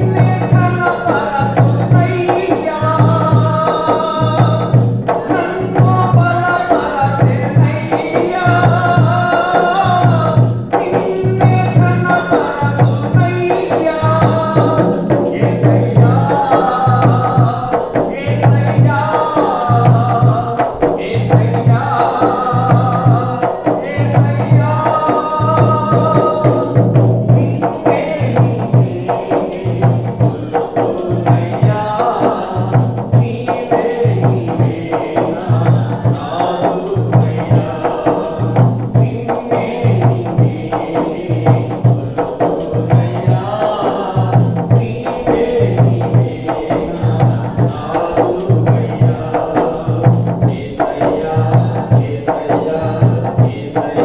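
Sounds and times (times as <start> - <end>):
devotional song singing: 0.0 - 54.0
light percussion: 0.0 - 54.0.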